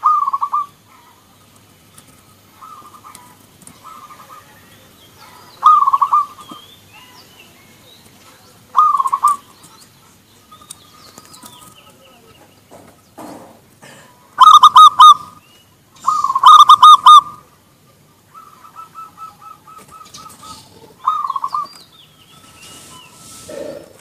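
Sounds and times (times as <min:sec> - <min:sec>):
dove rapid staccato cooing: 0:00.0 - 0:06.6, 0:08.7 - 0:10.2, 0:14.3 - 0:15.4, 0:16.0 - 0:21.8.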